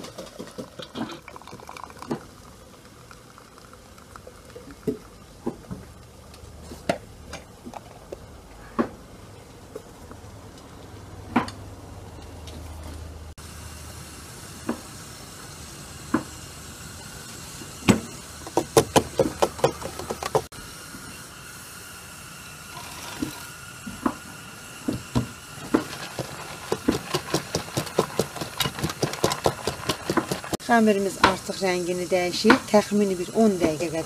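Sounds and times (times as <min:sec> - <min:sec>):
steam hissing: 0:13.4 - 0:34.0
whisk clicking against metal bowl: 0:26.0 - 0:30.6.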